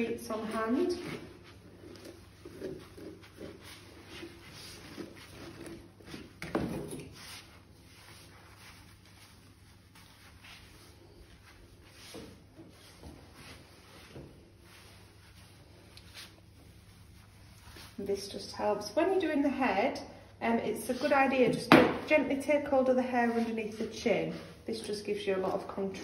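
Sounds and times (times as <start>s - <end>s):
comb rubbing through dog fur: 0.0s - 6.4s, 7.0s - 19.3s, 20.9s - 21.6s.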